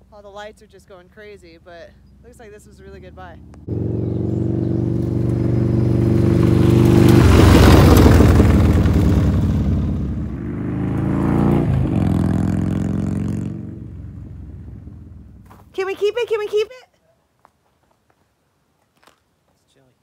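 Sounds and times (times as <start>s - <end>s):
motorcycle engine riding past: 2.1s - 15.7s.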